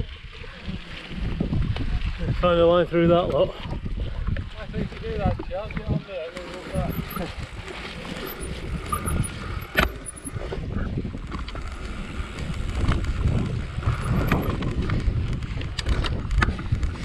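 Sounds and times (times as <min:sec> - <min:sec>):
rumble of bike tyres: 0:00.0 - 0:17.0
wind on microphone: 0:00.0 - 0:17.0
bike rattles and clicks: 0:03.9 - 0:17.0.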